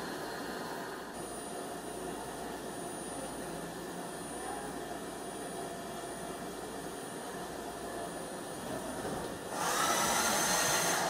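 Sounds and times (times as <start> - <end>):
loud rushing hiss: 9.5 - 11.0
milling machine cutting steel: 9.5 - 11.0.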